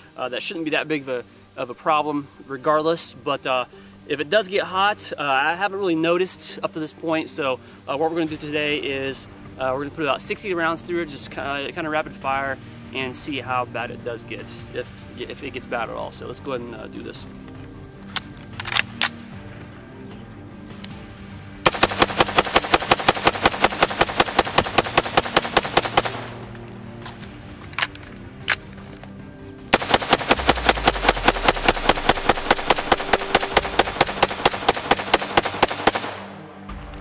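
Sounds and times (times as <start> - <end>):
rifle firing rapidly: 21.6 - 26.3, 29.7 - 36.3.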